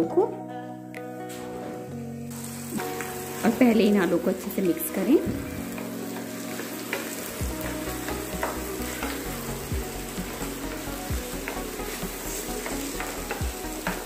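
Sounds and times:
potatoes sizzling in hot oil: 2.3 - 14.0
spatula scraping and knocking pan: 5.2 - 9.4, 10.6 - 14.0.

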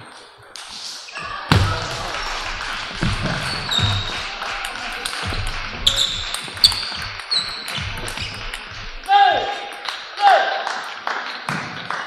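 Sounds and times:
low background din: 1.2 - 10.4
sharp ball hits: 1.5 - 9.1
table tennis balls clicking: 2.2 - 10.0.

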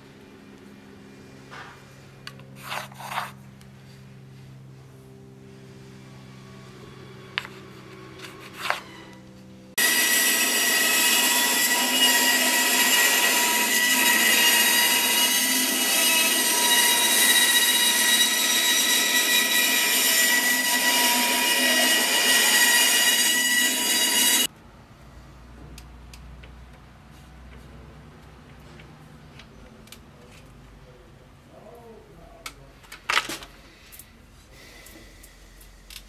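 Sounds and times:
bandsaw cutting wood: 9.8 - 24.5.

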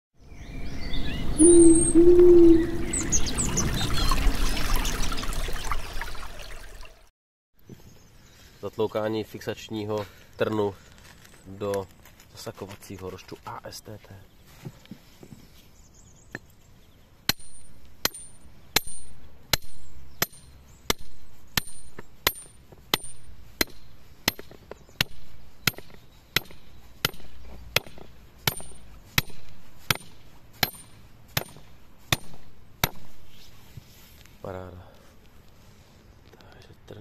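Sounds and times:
hammer striking metal pin: 17.3 - 33.0.

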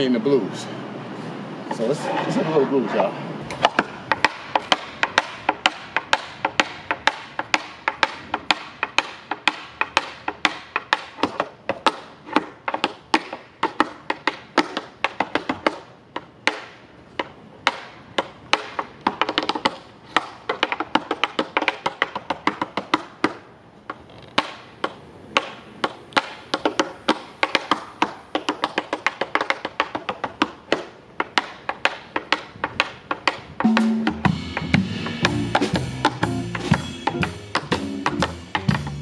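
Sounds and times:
tap shoes on wooden board: 3.5 - 34.8, 35.5 - 39.0
drums: 33.6 - 39.0
guitar: 33.7 - 39.0
upright bass: 33.7 - 39.0.

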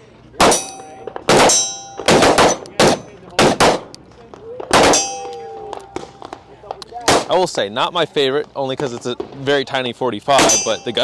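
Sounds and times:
steel targets ringing: 0.4 - 3.2, 4.8 - 6.3, 10.3 - 11.0
pistol shots: 0.4 - 4.0, 4.6 - 6.4, 7.0 - 7.4.

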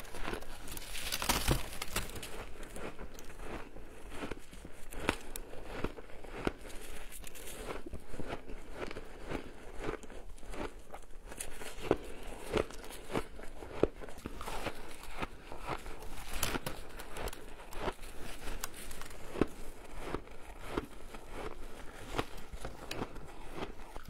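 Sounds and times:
ice being chewed: 0.0 - 24.0.

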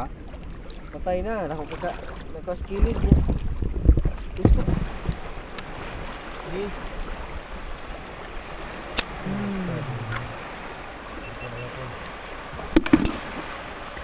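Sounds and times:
shallow seawater washing: 0.0 - 14.0
low voice: 9.2 - 10.3, 11.3 - 12.0
sharp knocks: 12.7 - 13.4.

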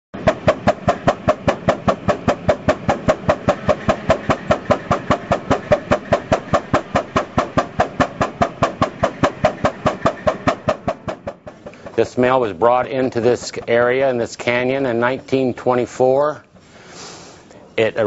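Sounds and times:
steam engine exhaust chuffing: 0.2 - 17.5.

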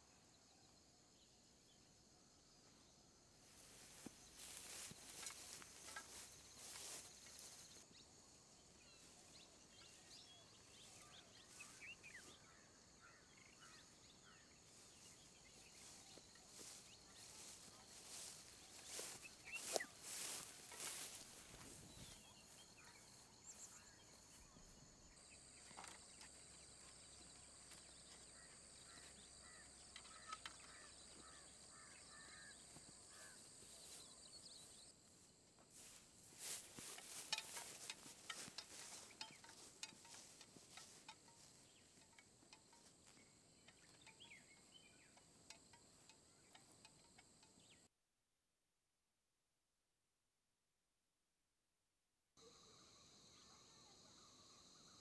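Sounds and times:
bird calls: 3.8 - 34.9, 35.8 - 42.2, 42.8 - 45.4
high insect buzz: 15.8 - 22.2.

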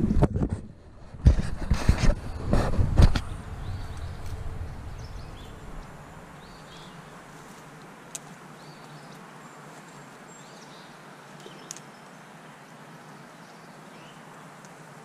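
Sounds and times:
handling rumble: 0.0 - 7.5
steady outdoor hiss: 0.0 - 15.0
songbirds chirping: 2.1 - 15.0.

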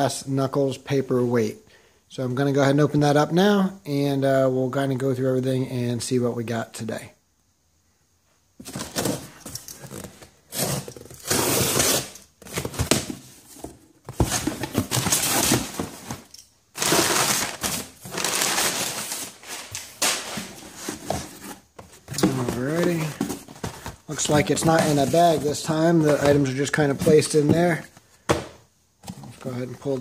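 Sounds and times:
packing paper rustling: 8.6 - 28.1
packing tape tearing: 9.8 - 13.2, 14.2 - 20.6.

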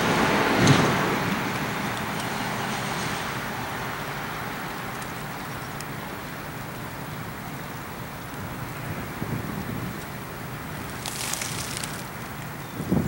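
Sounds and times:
diesel locomotive rumbling: 0.0 - 13.0
faint clicks: 4.9 - 6.0.

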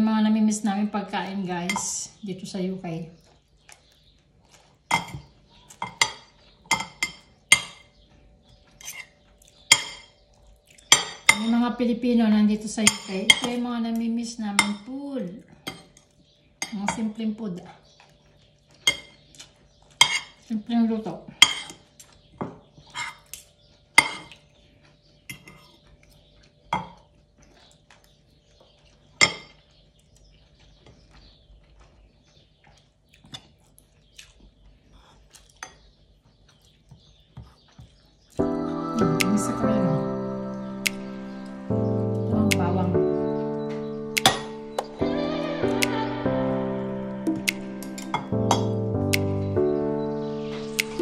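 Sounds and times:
cutlery clinking on plate: 4.9 - 7.9, 8.8 - 9.1, 9.7 - 10.2, 10.9 - 11.5, 18.8 - 19.2, 22.4 - 24.4, 29.2 - 29.6.

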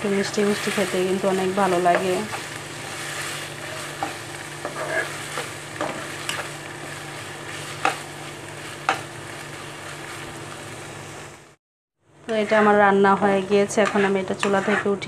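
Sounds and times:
curry sizzling in pan: 0.0 - 11.6
spatula knocking and scraping pan: 0.1 - 10.2, 12.3 - 15.0.

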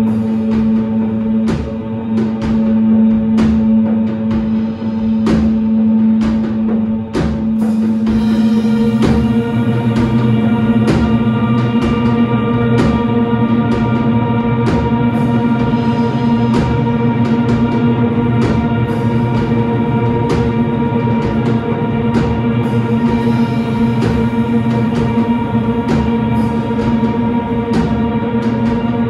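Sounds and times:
electric guitars and bass droning: 0.0 - 29.0
cymbal crashes: 7.2 - 14.1.

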